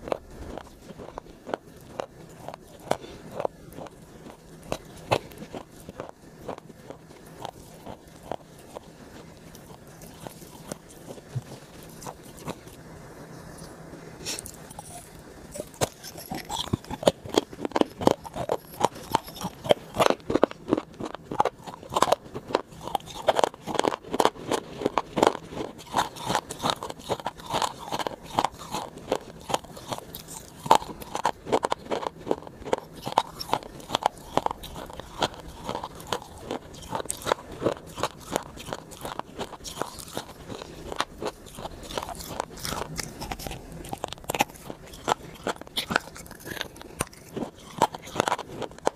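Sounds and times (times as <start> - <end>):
crunchy biting and chewing: 0.0 - 12.9, 13.5 - 48.9.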